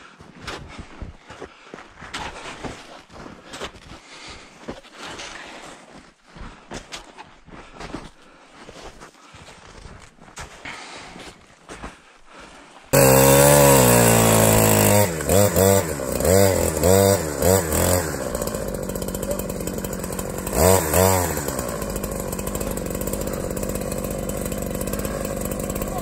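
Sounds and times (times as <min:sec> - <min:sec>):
chainsaw cutting and revving: 0:12.9 - 0:26.0
chainsaw idling: 0:13.0 - 0:26.0.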